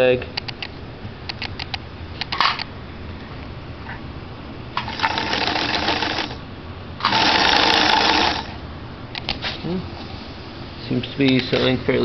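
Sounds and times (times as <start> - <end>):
sewing machine whirring: 4.8 - 6.4, 7.0 - 8.6.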